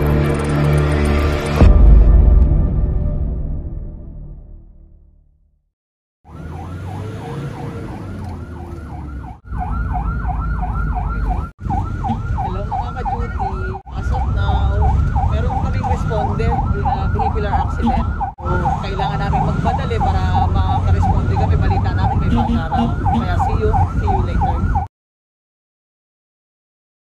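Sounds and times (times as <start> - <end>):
engine and road rumble: 0.0 - 2.8, 6.2 - 24.9
music: 0.0 - 5.4
emergency siren yelping: 6.2 - 24.9.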